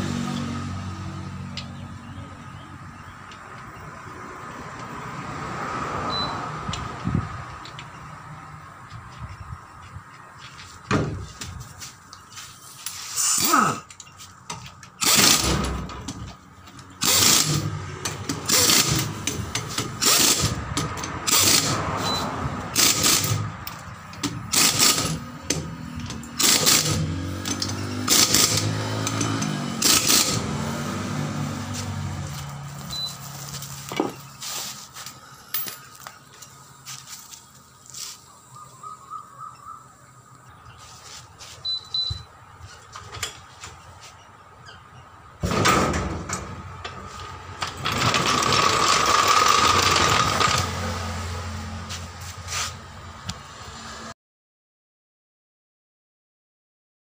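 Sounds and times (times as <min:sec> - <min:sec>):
pneumatic impact wrench bursts: 0:15.0 - 0:16.3, 0:16.9 - 0:23.6, 0:24.2 - 0:33.6, 0:47.1 - 0:51.0.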